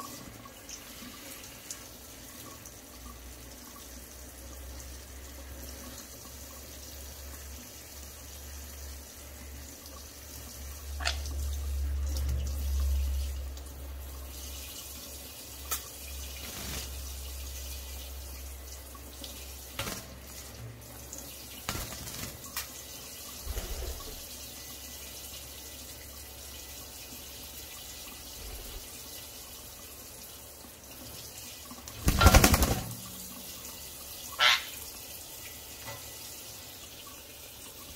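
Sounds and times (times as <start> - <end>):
faucet running into metal sink: 0.0 - 37.9
bird splashing in water: 32.0 - 33.0.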